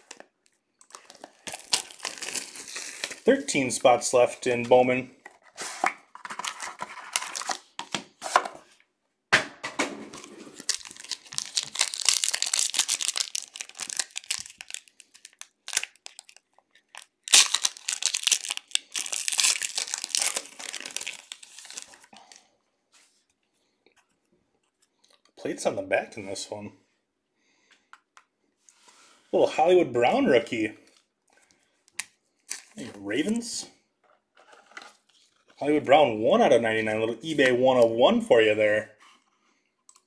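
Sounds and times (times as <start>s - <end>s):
plastic wrapper tearing and crinkling: 0.0s - 3.3s, 6.3s - 7.8s, 10.2s - 22.1s.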